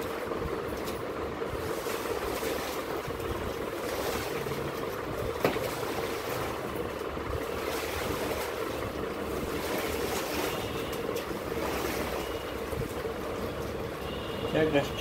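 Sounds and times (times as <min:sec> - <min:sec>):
water swishing under floor wiper: 0:00.0 - 0:15.0.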